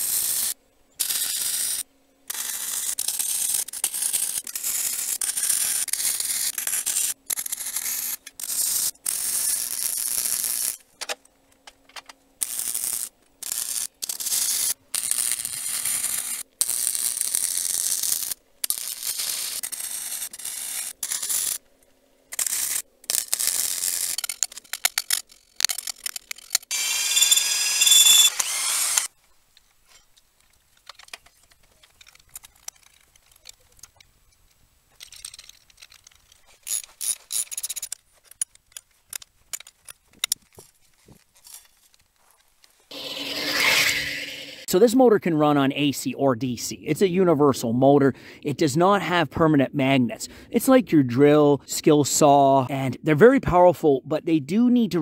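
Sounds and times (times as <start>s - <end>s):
welding arc crackling and hissing: 0.0s - 10.8s, 12.4s - 21.6s, 26.7s - 29.1s.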